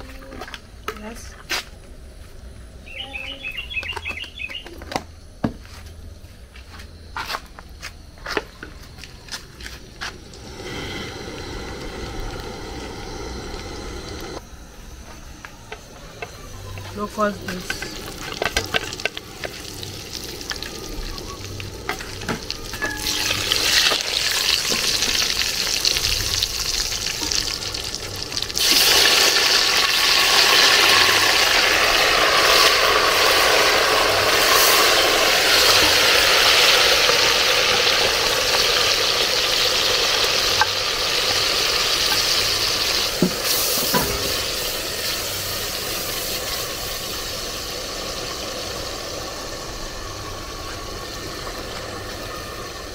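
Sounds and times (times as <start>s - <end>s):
food sizzling in hot oil: 9.4s - 14.4s, 16.6s - 52.9s.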